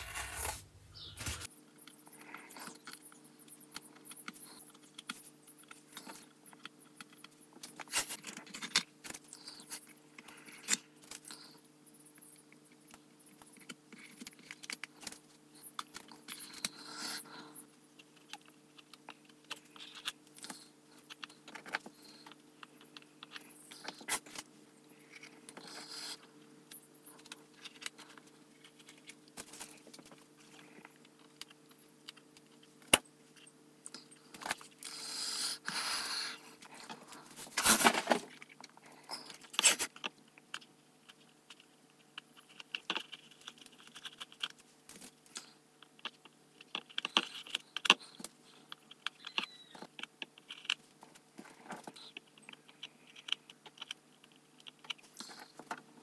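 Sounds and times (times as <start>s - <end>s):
masking tape peeling: 0.0s - 1.5s
faint steady hum: 0.0s - 56.0s.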